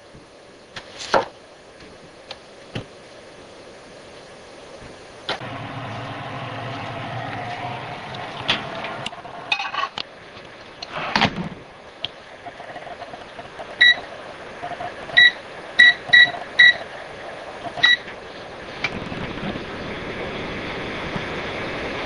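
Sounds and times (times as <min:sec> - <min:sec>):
knocks and a clunk: 0:11.1 - 0:11.6
microwave keypad beeping: 0:13.8 - 0:14.1, 0:15.1 - 0:16.9, 0:17.7 - 0:18.1.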